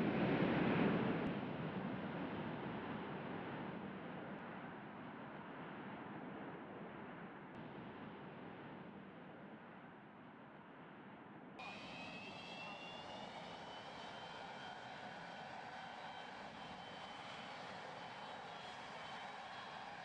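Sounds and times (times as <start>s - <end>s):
jet engines whining: 11.6s - 20.0s.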